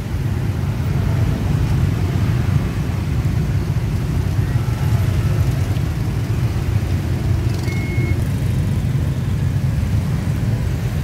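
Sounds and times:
motorbike traffic drone: 0.0 - 11.0
short high beep: 7.6 - 8.2.

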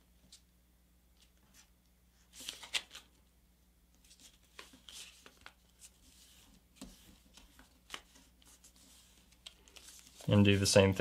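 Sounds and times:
paper being folded and creased: 2.3 - 3.1, 4.1 - 10.6.

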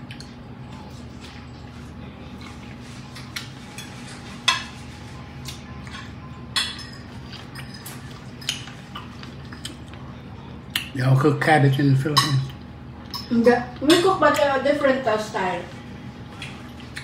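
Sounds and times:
steady low hum: 0.0 - 17.0
fork clinking against plate: 12.0 - 13.3.

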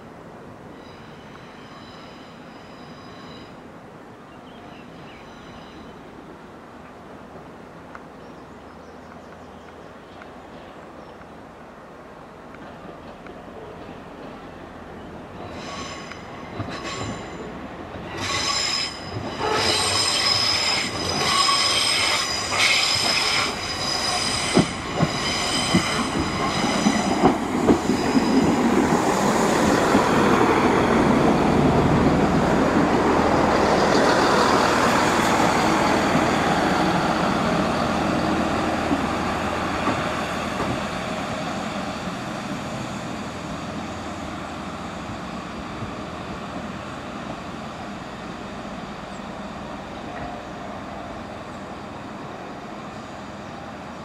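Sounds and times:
diesel train rumbling past: 0.0 - 54.0
train wheels squealing and clicking: 15.3 - 31.6, 33.5 - 53.1.

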